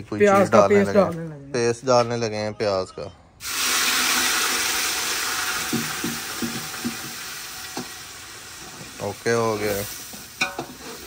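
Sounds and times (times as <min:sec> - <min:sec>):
paste sizzling in hot oil: 0:03.4 - 0:11.0.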